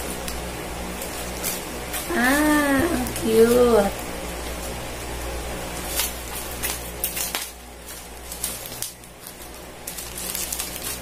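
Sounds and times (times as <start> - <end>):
steady low hum: 0.0 - 11.0
plastic packaging crinkling: 5.7 - 11.0.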